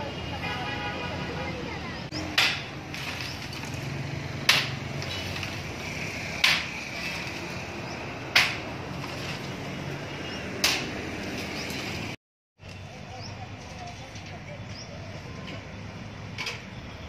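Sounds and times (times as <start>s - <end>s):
hammer striking masonry wall: 2.2s - 3.1s, 4.4s - 5.0s, 6.4s - 6.8s, 8.3s - 8.7s.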